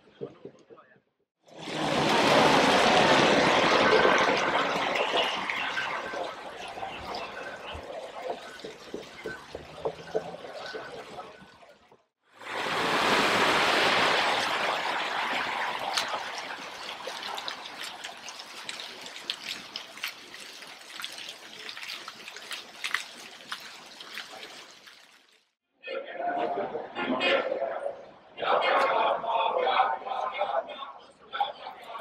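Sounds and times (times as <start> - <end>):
fountain jets splashing: 1.5 - 25.6
faint voices: 2.9 - 11.4.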